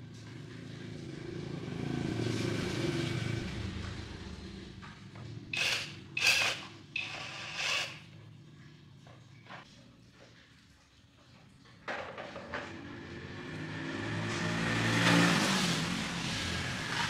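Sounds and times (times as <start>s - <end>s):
cordless drill driving screws: 5.5s - 8.1s.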